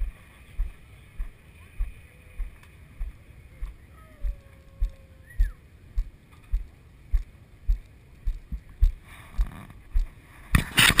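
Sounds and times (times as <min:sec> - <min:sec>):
low even thumps with clicks: 0:00.0 - 0:10.7
microphone handling and wind: 0:06.4 - 0:11.0.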